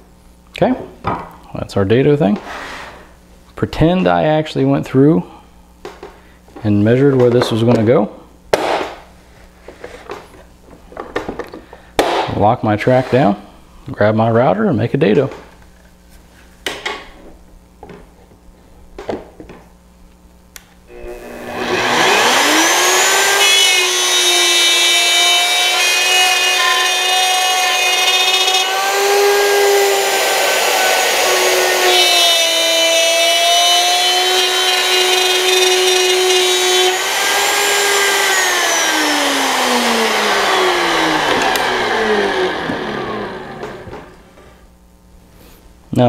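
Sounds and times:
electric router cutting wood: 0:20.9 - 0:44.3.

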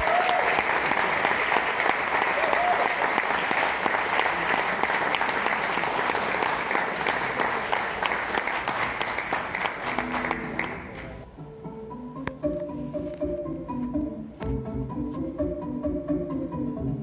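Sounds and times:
audience applauding: 0:00.0 - 0:11.2
plucked guitar notes: 0:11.2 - 0:17.0.

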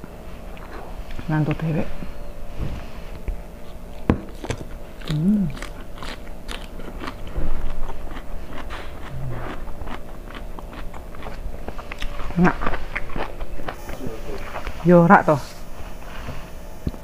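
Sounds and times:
person chewing and crunching food: 0:00.4 - 0:01.3, 0:03.2 - 0:14.8.

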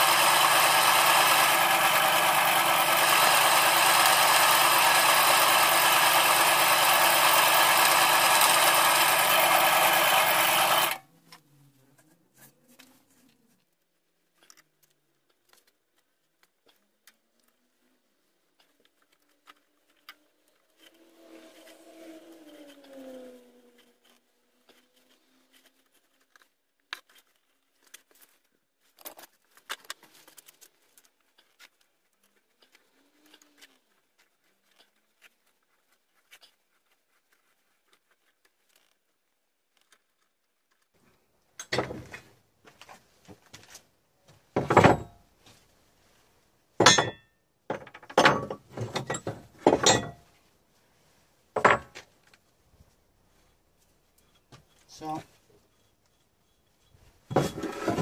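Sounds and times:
metal pieces clanking on bench: 0:46.8 - 0:47.2, 0:47.8 - 0:50.2
metal parts clicking and tapping: 0:46.8 - 0:50.2.

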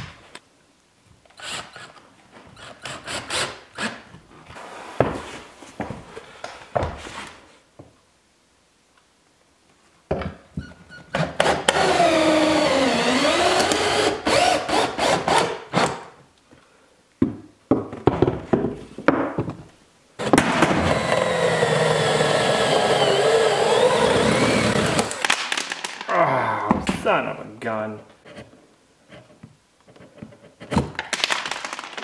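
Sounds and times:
drill driving screws into wood: 0:01.3 - 0:02.0, 0:02.6 - 0:04.0, 0:11.1 - 0:16.1, 0:20.2 - 0:25.4.

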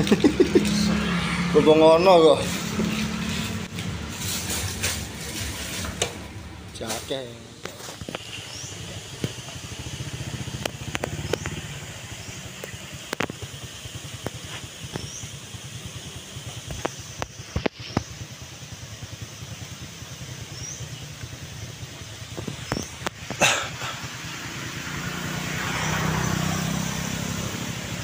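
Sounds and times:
engine humming: 0:00.0 - 0:28.0.

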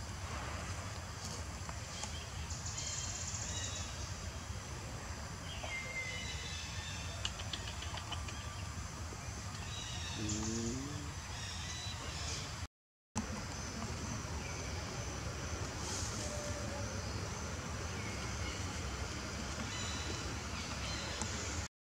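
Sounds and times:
birds chirping: 0:05.2 - 0:21.7
faint high hiss: 0:08.4 - 0:11.4, 0:14.4 - 0:21.7
brief low call: 0:10.2 - 0:11.1.

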